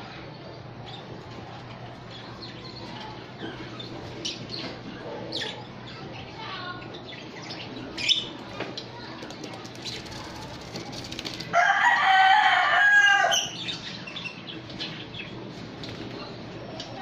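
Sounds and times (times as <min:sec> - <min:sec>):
cage birds chirping: 0:00.0 - 0:17.0
rooster crowing: 0:11.5 - 0:13.5.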